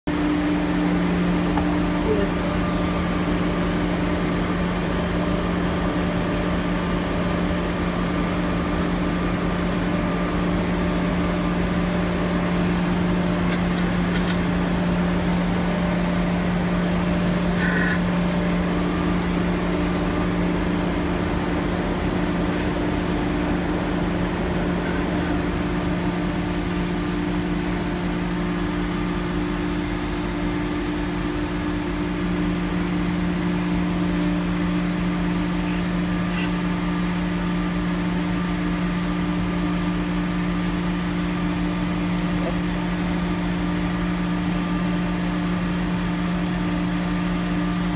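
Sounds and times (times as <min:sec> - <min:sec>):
machine humming: 0:00.1 - 0:47.9
aerosol spray hisses: 0:13.5 - 0:14.4.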